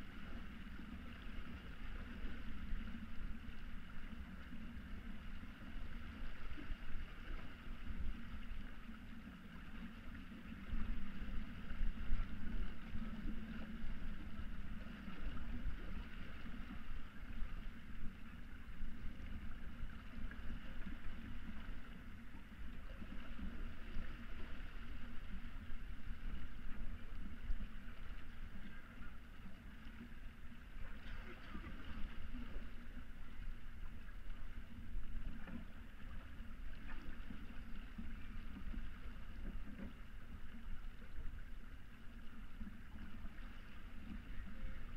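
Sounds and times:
water rushing along hull: 0.0s - 44.9s.

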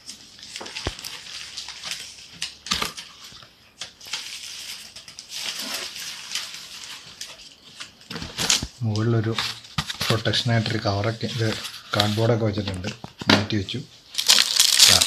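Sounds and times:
cardboard scraping and rustling: 4.2s - 13.0s.

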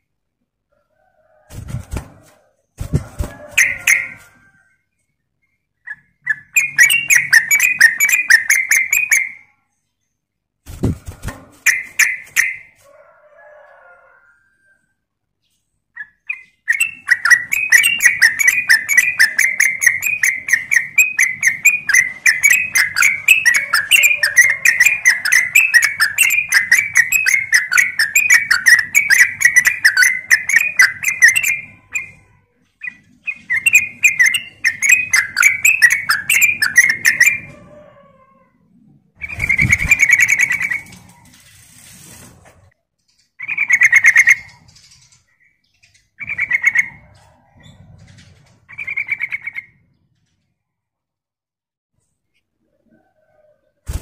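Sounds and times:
bird singing chattering notes: 16.0s - 32.2s, 32.8s - 37.5s.

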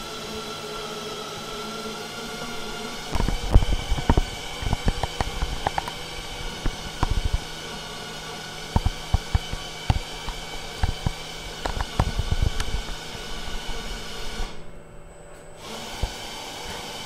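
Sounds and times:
ventilation hum and hiss: 0.0s - 17.0s
irregular clicks and knocks: 3.1s - 7.5s, 8.7s - 13.0s.

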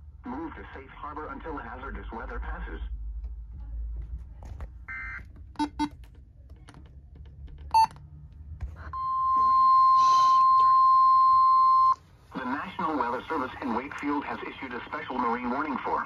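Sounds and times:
weather radio button beeps: 7.7s - 7.9s.

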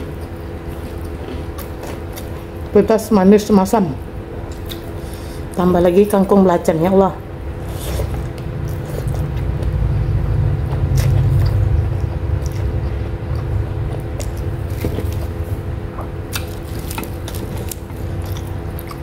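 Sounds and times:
low rumble and hum: 0.0s - 19.0s
close chewing with mouth smacks: 4.5s - 5.0s, 10.6s - 19.0s.

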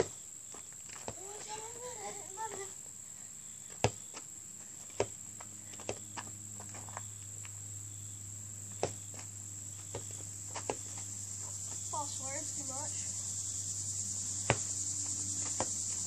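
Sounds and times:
crickets chirring: 0.0s - 16.0s
basketball striking hoop: 8.8s - 9.1s.

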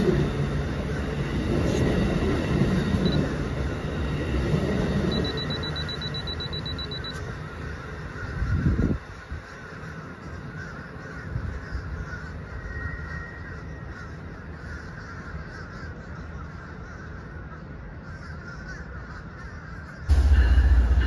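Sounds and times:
distant train rumbling: 0.0s - 14.6s, 20.0s - 21.0s.

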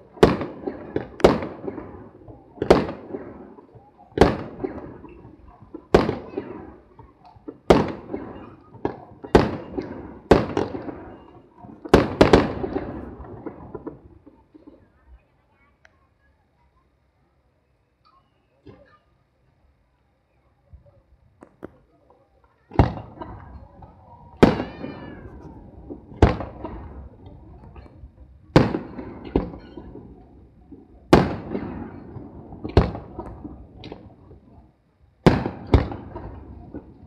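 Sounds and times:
firework shells booming: 0.0s - 14.8s, 22.7s - 37.0s.

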